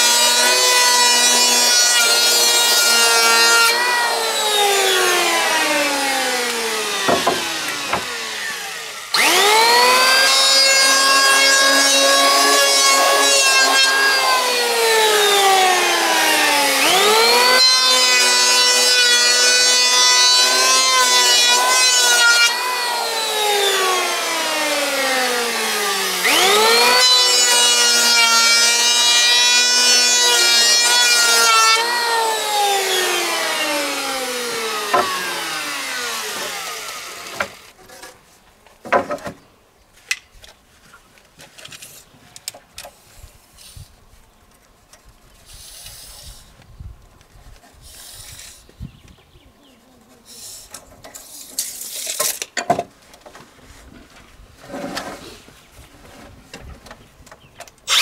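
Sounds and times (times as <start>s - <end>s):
power tool motor whining: 0.0s - 37.7s.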